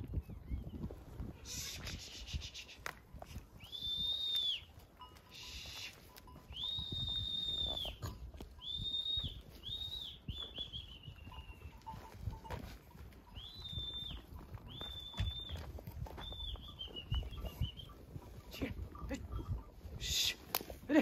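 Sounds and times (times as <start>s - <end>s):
sheep shuffling patter: 0.0s - 21.0s
herding whistles: 1.5s - 2.9s, 3.6s - 12.0s, 13.3s - 18.1s.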